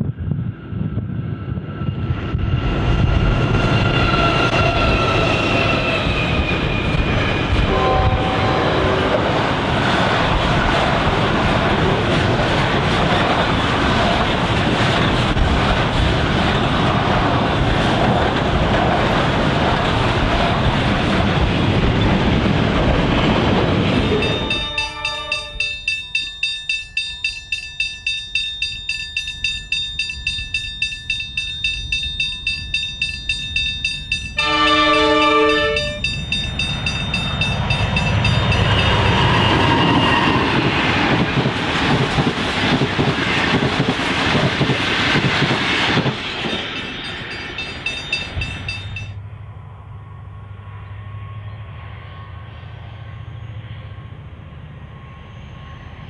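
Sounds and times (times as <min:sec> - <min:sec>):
train rumbling past: 0:00.0 - 0:56.0
locomotive horn: 0:07.6 - 0:09.2, 0:34.4 - 0:36.0.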